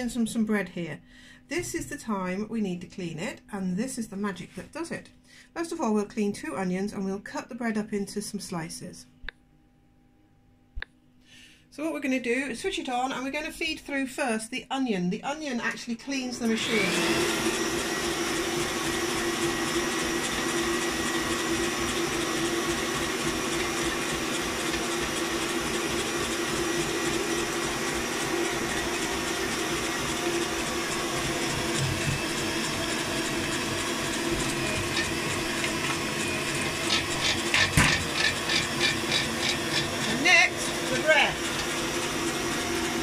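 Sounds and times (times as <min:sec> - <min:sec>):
stand mixer mincer whirring: 0:16.4 - 0:43.0.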